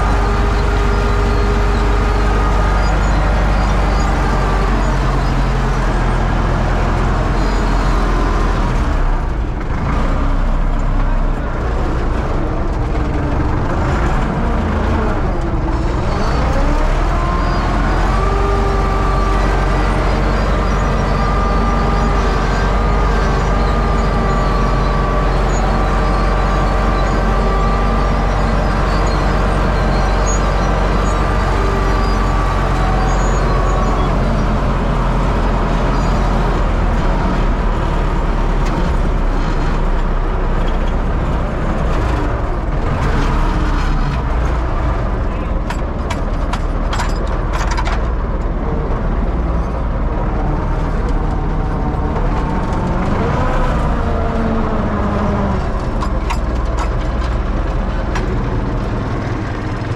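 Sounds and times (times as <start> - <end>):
whining tone: 0.0 - 45.9
diesel tractor engine running: 0.0 - 59.9.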